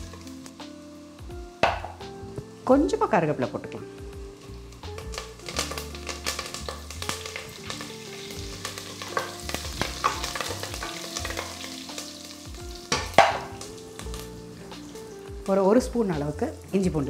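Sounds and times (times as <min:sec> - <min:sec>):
spices sizzling in oil: 0:00.0 - 0:17.0.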